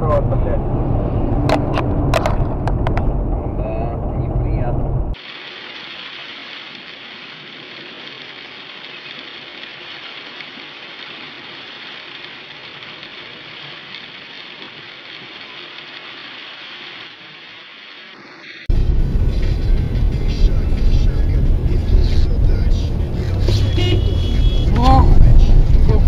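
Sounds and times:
heavy rain on car windshield: 5.2s - 26.0s.

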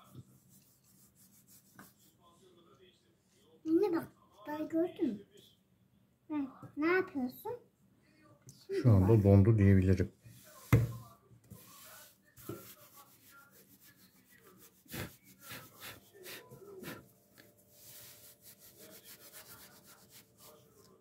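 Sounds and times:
hands rubbing paper: 0.0s - 2.2s, 11.6s - 21.0s.

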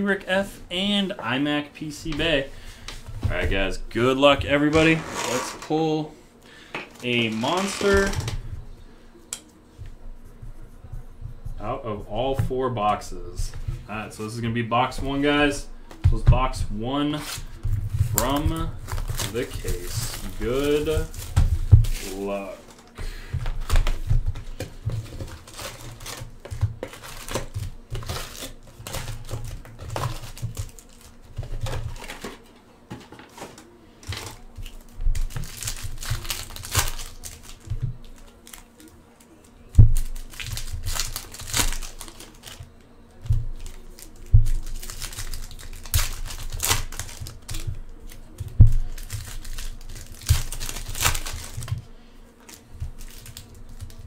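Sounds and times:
foil wrappers tearing and crinkling: 6.9s - 8.4s, 17.1s - 32.5s, 33.3s - 54.0s.

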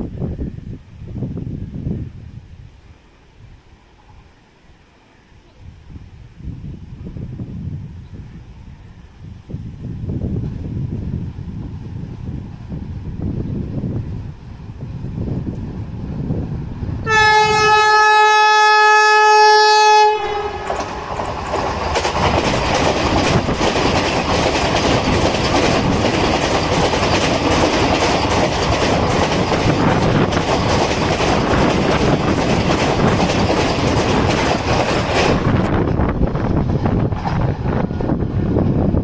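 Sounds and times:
train passing at speed: 0.0s - 39.0s
train horn: 17.0s - 21.1s
wheels clicking over rail joints: 20.4s - 39.0s.

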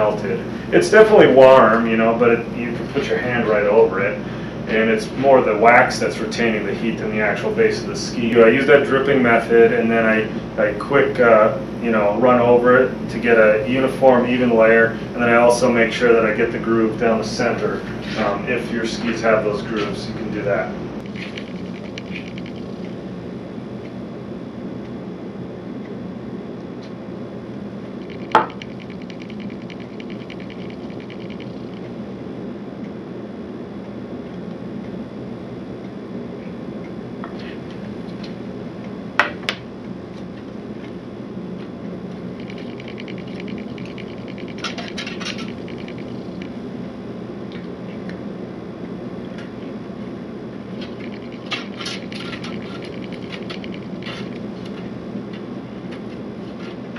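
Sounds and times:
steady low hum: 0.0s - 56.9s
soft scraping of wax iron: 17.8s - 18.6s
sharp clicks: 21.0s - 23.0s, 28.0s - 31.9s, 42.4s - 46.6s, 50.8s - 54.8s.

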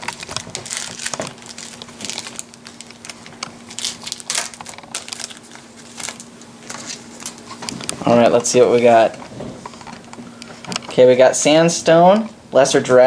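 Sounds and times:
foil wrapper crinkling and tearing: 0.0s - 7.9s.

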